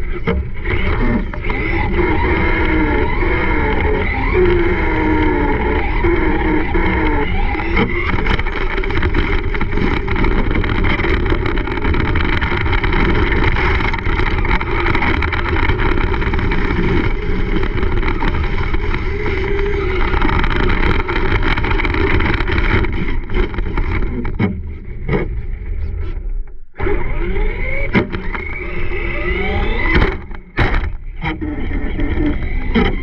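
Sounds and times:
tyre and chassis rattle: 0.0 - 25.4
wind on microphone: 0.0 - 26.2
rc truck motor whine: 0.0 - 33.0.

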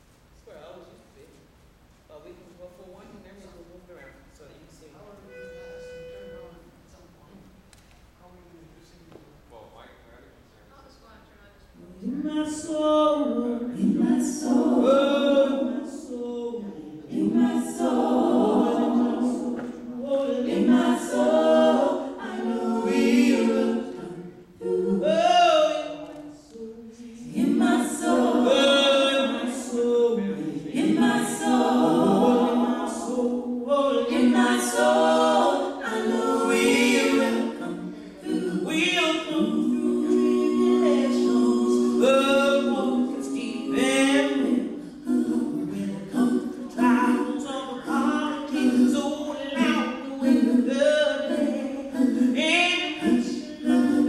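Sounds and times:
women singing a cappella: 11.9 - 54.0.

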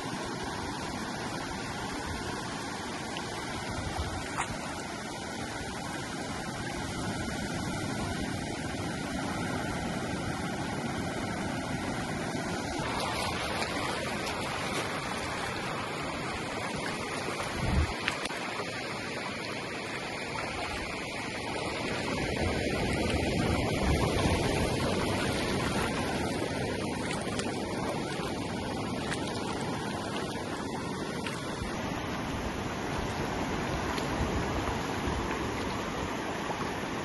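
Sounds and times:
shallow surf washing: 0.0 - 37.0
wind noise: 16.4 - 18.1, 21.8 - 30.6.

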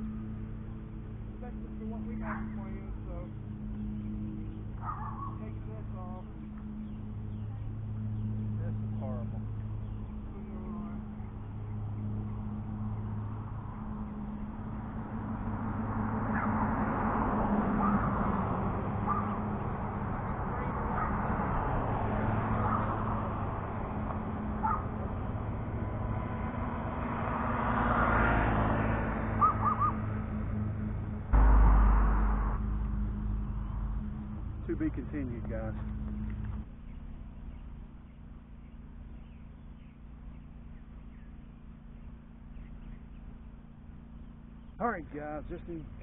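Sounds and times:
lawn mower engine drone: 0.0 - 46.0
bird calling: 2.1 - 15.4, 16.2 - 26.2, 29.2 - 30.2.

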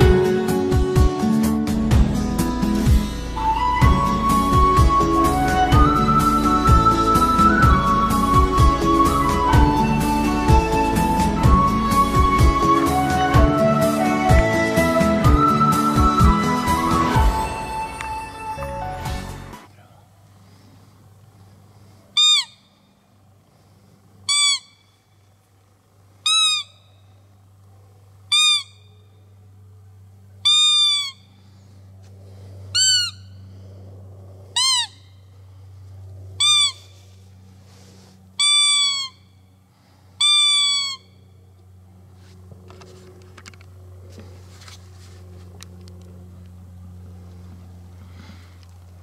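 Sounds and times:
low steady hum: 0.0 - 49.0
high squeaking deer call: 22.2 - 23.0, 24.3 - 25.2, 26.2 - 27.2, 28.3 - 29.4, 30.4 - 31.5, 32.7 - 33.6, 34.5 - 35.4, 36.3 - 37.2, 38.4 - 39.6, 40.2 - 41.4.

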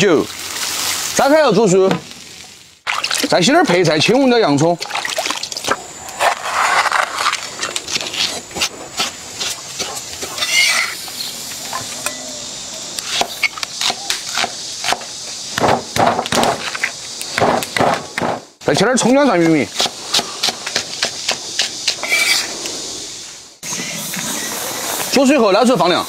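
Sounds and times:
vegetables rinsed in water: 0.0 - 5.8.

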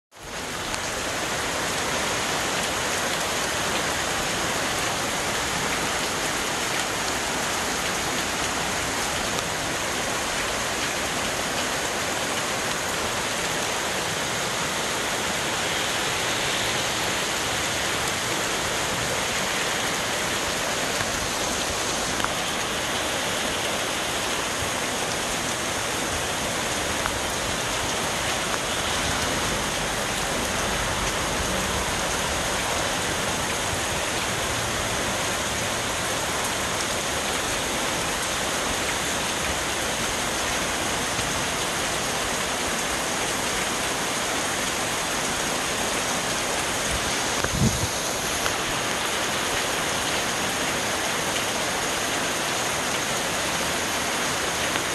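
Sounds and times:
steady rain on trees: 0.1 - 54.9.

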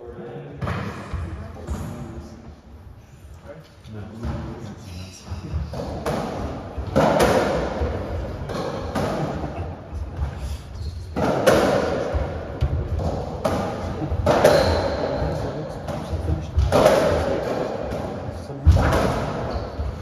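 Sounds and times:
racket hitting ball: 5.8 - 9.5, 11.2 - 15.3.

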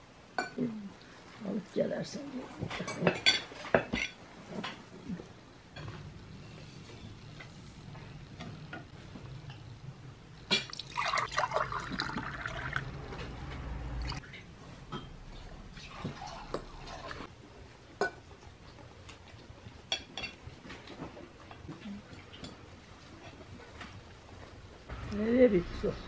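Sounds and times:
cutlery and dishes clinking: 2.6 - 4.8, 19.8 - 21.6
drink gurgling into glasses: 10.6 - 13.0, 15.8 - 17.2.

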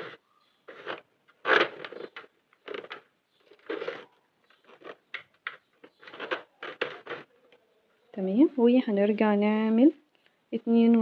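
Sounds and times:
plastic and yarn scraping and clicking: 0.0 - 8.4.

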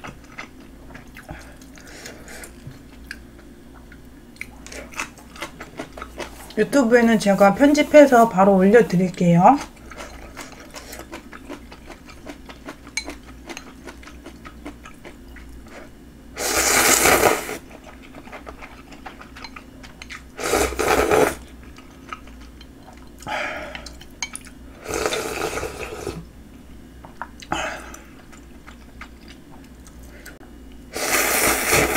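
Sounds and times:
noodles being slurped: 16.4 - 19.0, 20.4 - 21.5, 24.8 - 26.2, 30.9 - 31.9.

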